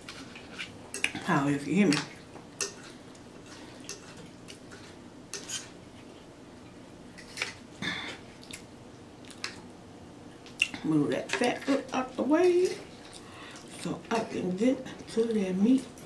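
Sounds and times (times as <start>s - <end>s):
cutlery scraping on china plate: 5.3s - 5.7s.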